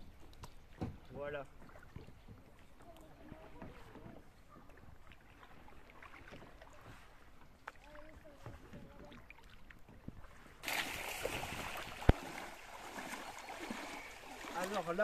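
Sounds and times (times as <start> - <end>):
splashing of wading in stream: 0.0 - 15.0
water dripping: 10.6 - 15.0.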